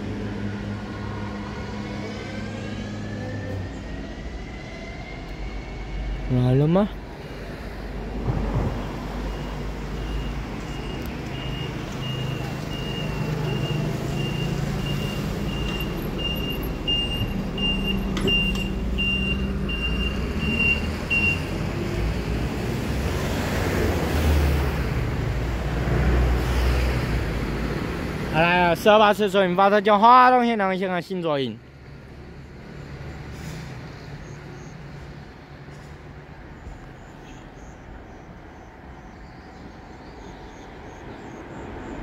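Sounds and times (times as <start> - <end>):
road traffic rumble: 0.0 - 42.0
broad rushing noise: 5.5 - 10.0.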